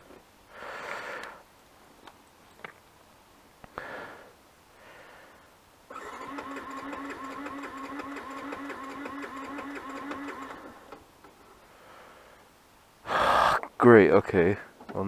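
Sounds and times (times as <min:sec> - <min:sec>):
motorcycle starter cranking: 0:05.9 - 0:11.0.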